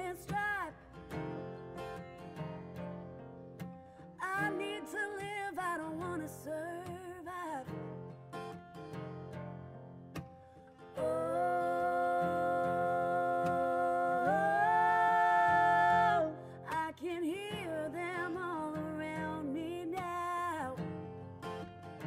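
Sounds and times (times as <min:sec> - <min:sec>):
strummed acoustic guitars: 0:00.0 - 0:22.0
man and woman singing in harmony: 0:11.0 - 0:20.5.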